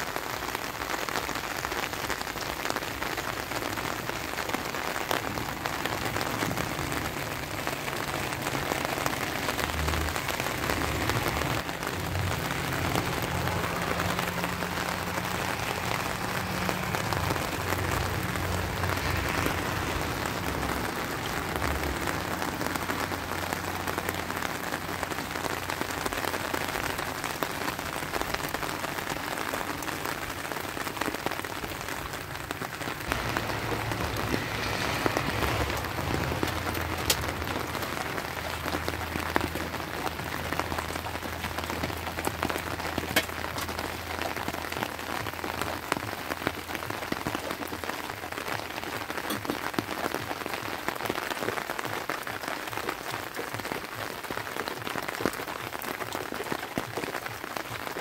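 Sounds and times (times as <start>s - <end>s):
rain pattering on rock: 0.0s - 58.0s.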